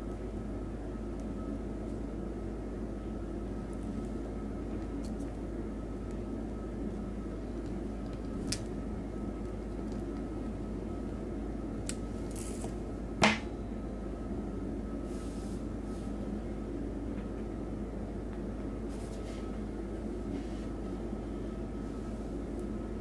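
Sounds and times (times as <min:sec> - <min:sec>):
room noise hum: 0:00.0 - 0:23.0
pliers clicking on wire: 0:11.8 - 0:12.7.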